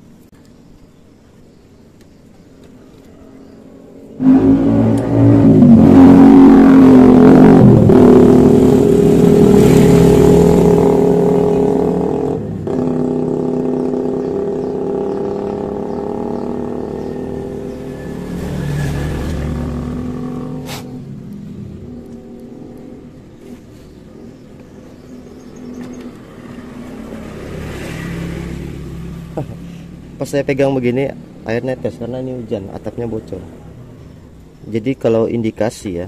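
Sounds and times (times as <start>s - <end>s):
vehicle engine revving: 4.1s - 34.4s.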